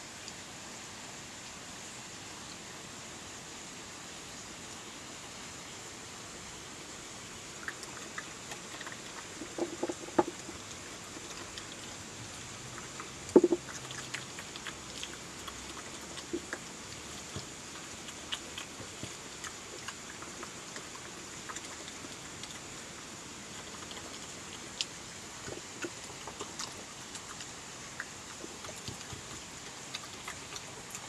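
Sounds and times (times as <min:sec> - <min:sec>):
steady hiss: 0:00.0 - 0:31.0
badger chewing and crunching: 0:07.4 - 0:31.0.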